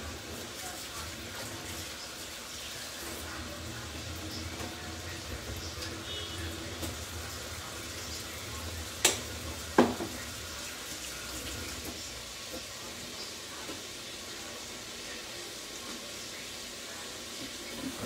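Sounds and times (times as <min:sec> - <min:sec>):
food sizzling in pans: 0:00.0 - 0:18.0.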